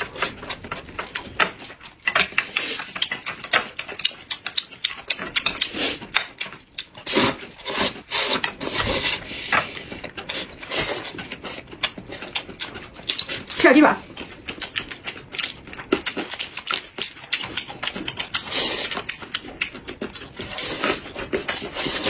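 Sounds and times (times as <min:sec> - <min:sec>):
people slurping noodles: 0:05.5 - 0:06.1, 0:06.9 - 0:11.6, 0:18.4 - 0:19.1, 0:20.3 - 0:22.0.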